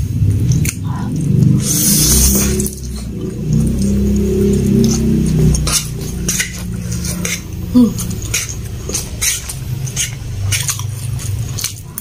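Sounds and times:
wet chewing and mouth clicks: 0.0s - 12.0s
fork scraping a plate: 4.8s - 11.8s.

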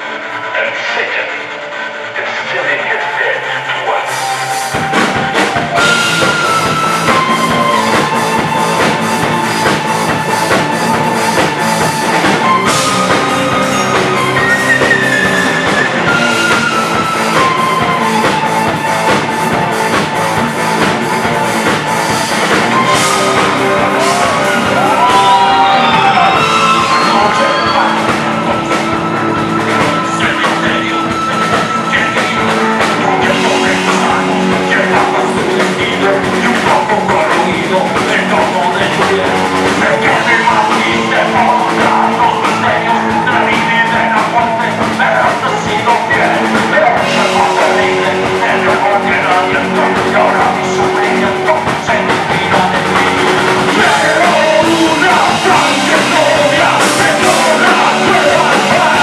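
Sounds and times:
drums: 0.0s - 59.0s
keyboard sustained notes: 0.0s - 59.0s
electric guitar: 1.3s - 59.0s
electric bass: 3.4s - 59.0s.

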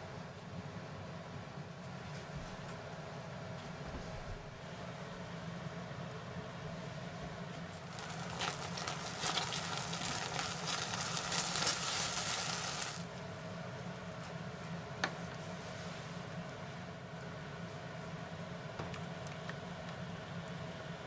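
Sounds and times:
sauce sizzling in a frying pan: 7.9s - 13.0s.

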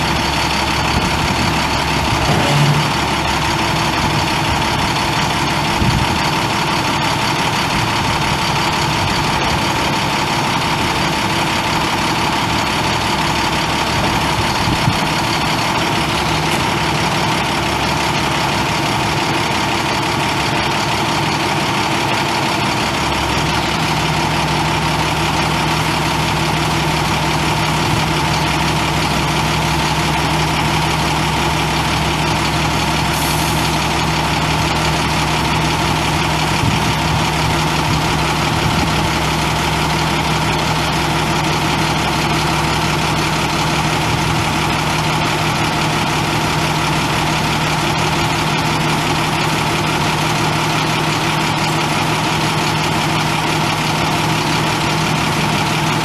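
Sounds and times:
diesel truck engine idling: 0.0s - 56.0s.

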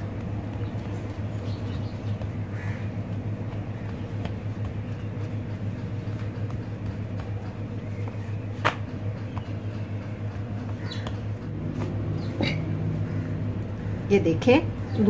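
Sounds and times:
dough slapping on stone counter: 0.0s - 11.9s
hands working dough: 0.0s - 12.6s
low room hum: 0.0s - 15.0s.

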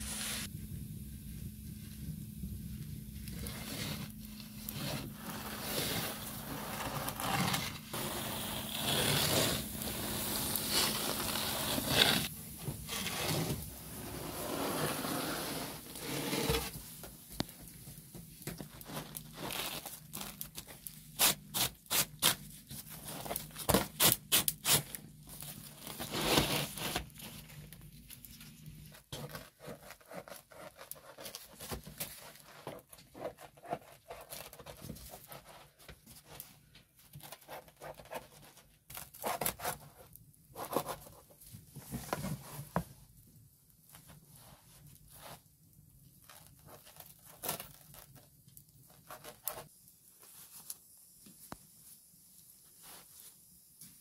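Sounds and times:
wooden peel scraping stone: 4.7s - 16.8s.

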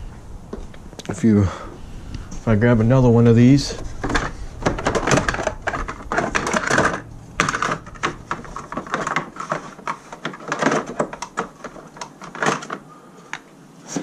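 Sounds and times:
objects clicking and clattering: 3.8s - 13.5s.

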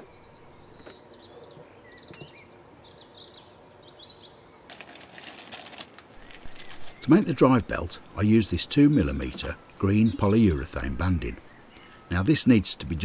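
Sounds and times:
faint bird chirps: 6.2s - 12.4s.

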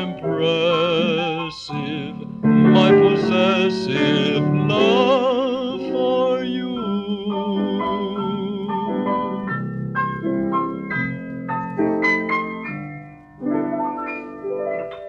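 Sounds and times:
person singing with operatic vibrato: 0.0s - 9.5s
instrumental accompaniment: 0.0s - 15.0s.

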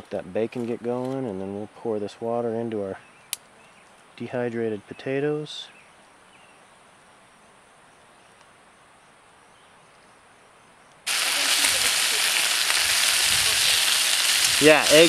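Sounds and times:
faint outdoor background: 0.0s - 15.0s
bacon sizzling in a skillet: 11.1s - 15.0s.

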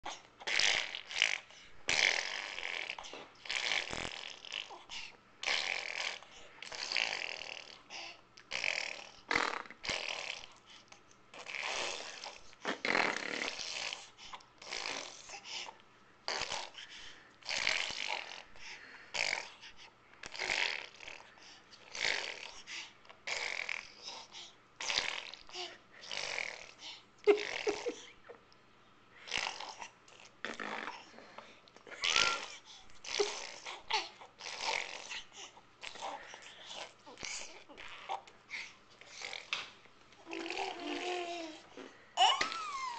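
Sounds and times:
baby blowing raspberries: 0.1s - 10.6s, 11.3s - 15.7s, 16.3s - 28.1s, 29.2s - 31.2s, 31.9s - 39.6s, 40.2s - 42.9s.

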